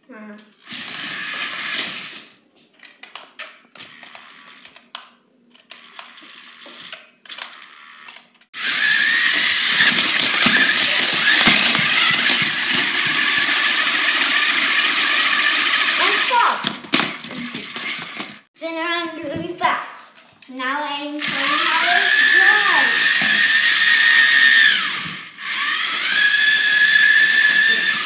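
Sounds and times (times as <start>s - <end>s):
toy robot motor hum: 0.6s - 2.3s, 5.7s - 16.5s, 17.2s - 18.4s, 21.2s - 28.0s
robot spinning rattling whir: 0.6s - 2.4s, 5.7s - 18.5s, 21.2s - 28.0s.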